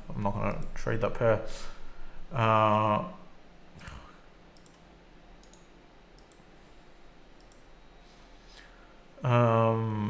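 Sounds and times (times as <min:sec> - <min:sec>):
low room hiss: 0:00.0 - 0:10.0
computer mouse clicks: 0:03.8 - 0:04.8, 0:05.4 - 0:06.5, 0:07.4 - 0:07.7.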